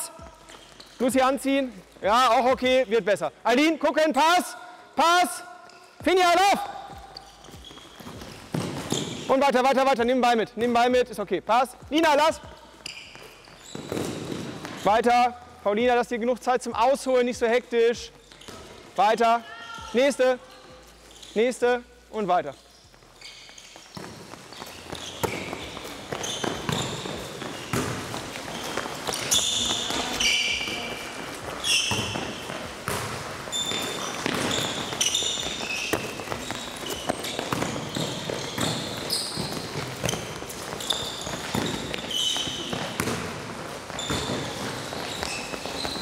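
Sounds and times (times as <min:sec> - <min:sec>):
shoes squeaking on court floor: 0:00.0 - 0:03.8, 0:05.4 - 0:46.0
footsteps: 0:05.6 - 0:09.3, 0:22.6 - 0:46.0
ball bouncing: 0:06.9 - 0:09.3, 0:12.4 - 0:14.9, 0:23.7 - 0:46.0.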